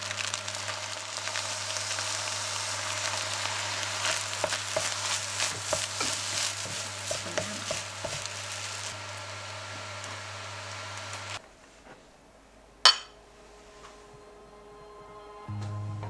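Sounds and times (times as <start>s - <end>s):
rice sizzling in frying pan: 0.0s - 11.4s
spatula scraping through rice: 3.1s - 9.0s.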